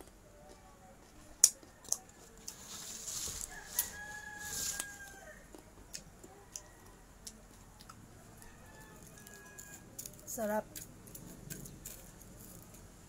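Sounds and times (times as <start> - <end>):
rooster crowing: 3.4 - 5.5, 8.3 - 10.0.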